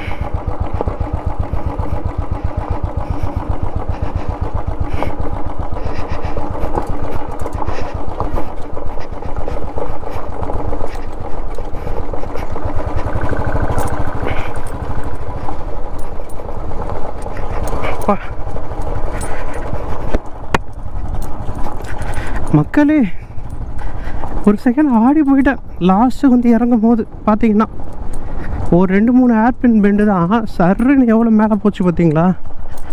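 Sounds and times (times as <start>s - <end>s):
motorcycle engine thumping: 0.0s - 25.8s.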